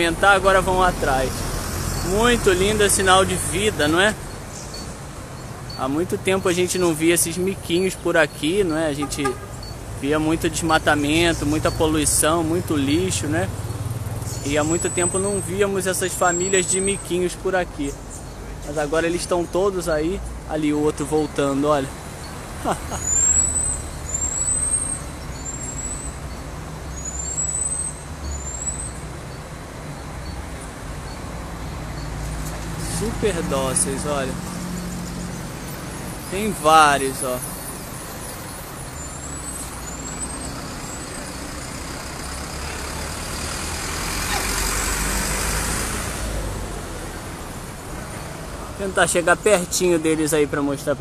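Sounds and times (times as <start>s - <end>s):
marmoset whistling calls: 23.0s - 26.1s
heavy vehicle passing: 30.9s - 49.1s.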